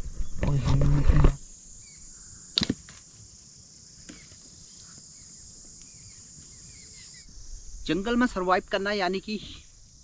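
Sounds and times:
high-pitched insect chirring: 0:00.8 - 0:10.0
sharp snap: 0:02.6 - 0:02.9.

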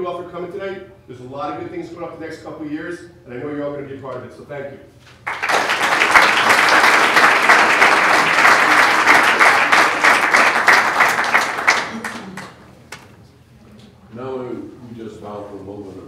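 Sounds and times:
audience clapping: 0:05.2 - 0:13.1.

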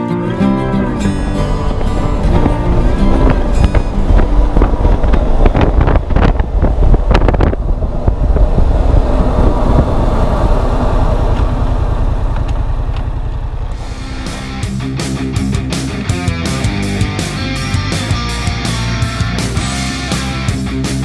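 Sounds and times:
motorcycle engine running: 0:00.3 - 0:21.0
wind rush over microphone: 0:00.9 - 0:14.6.

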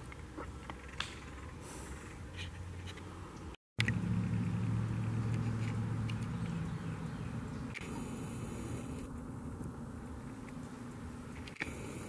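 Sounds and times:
low engine hum: 0:03.0 - 0:12.0.

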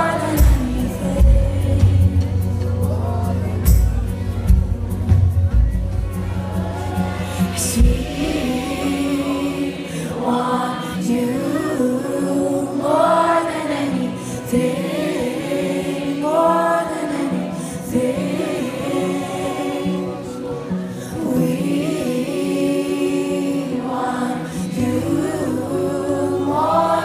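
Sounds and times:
heavy bass: 0:00.0 - 0:09.2
light musical accompaniment: 0:00.0 - 0:10.0
voices singing together: 0:00.0 - 0:27.0.

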